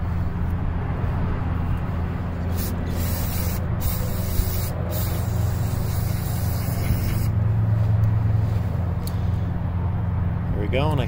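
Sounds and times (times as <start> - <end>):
steady low hum: 0.0 - 11.0
aerosol spray hissing: 2.5 - 7.3.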